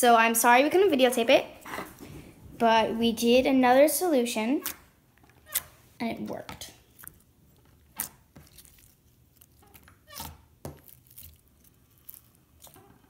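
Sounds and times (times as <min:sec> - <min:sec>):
slime squishing: 0:04.5 - 0:13.0.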